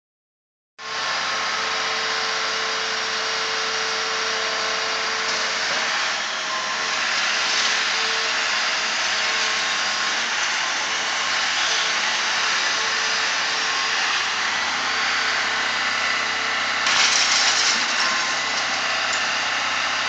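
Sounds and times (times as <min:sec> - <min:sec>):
faint hydraulic whine: 0:00.8 - 0:17.2
excavator engine running: 0:00.8 - 0:20.0.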